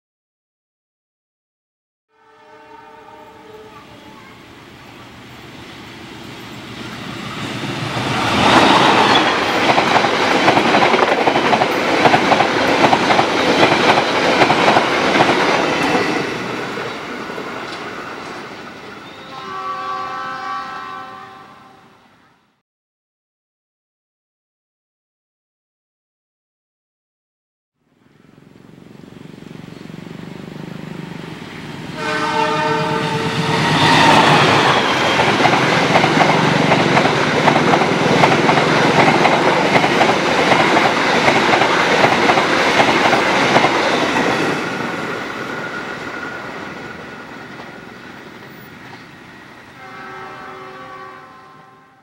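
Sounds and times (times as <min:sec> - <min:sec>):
train horn: 0:02.1 - 0:04.4, 0:19.0 - 0:22.6, 0:31.9 - 0:35.3, 0:49.7 - 0:52.0
train wheels clickety-clack: 0:07.4 - 0:18.5, 0:33.2 - 0:46.0.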